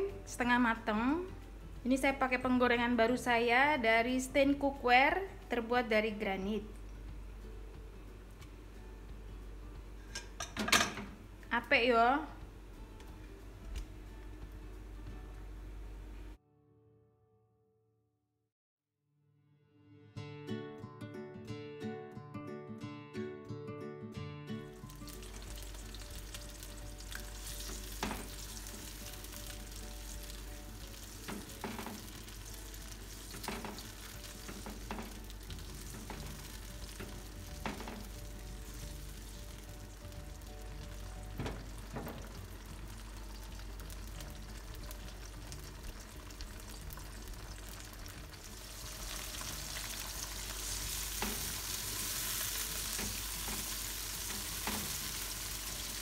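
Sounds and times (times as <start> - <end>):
chillies sizzling in hot oil: 24.8 - 56.0.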